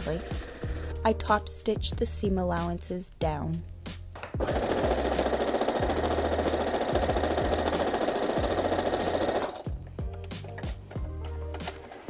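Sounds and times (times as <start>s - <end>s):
sewing machine running: 0.1s - 1.0s, 4.4s - 9.7s.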